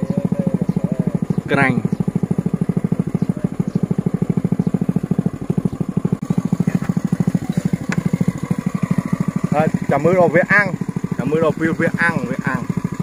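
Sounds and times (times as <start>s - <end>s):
small engine running: 0.0s - 13.0s.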